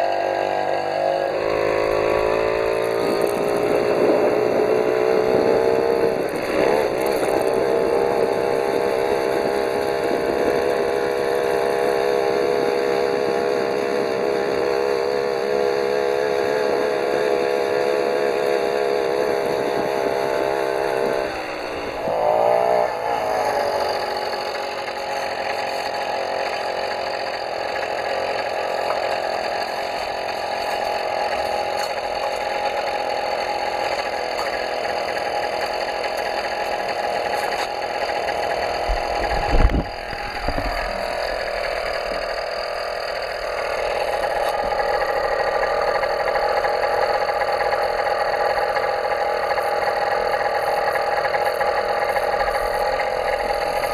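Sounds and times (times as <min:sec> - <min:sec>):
small motorized bicycle engine buzzing: 0:00.0 - 0:53.9.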